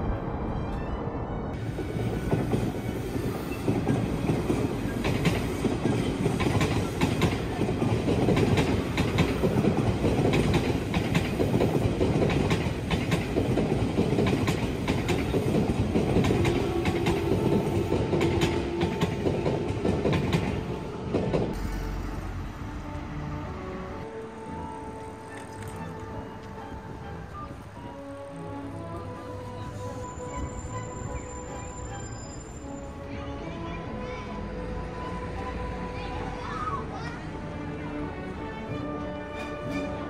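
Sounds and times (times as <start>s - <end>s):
train wheels rumbling on rails: 1.5s - 25.2s
clacks over rail joints: 3.8s - 21.6s.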